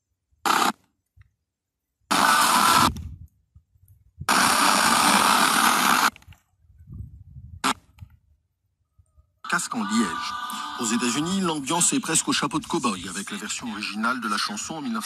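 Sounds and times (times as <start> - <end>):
radio static bursts: 0.4 - 0.8, 2.1 - 3.0, 4.3 - 6.2, 7.6 - 7.9, 9.5 - 15.0.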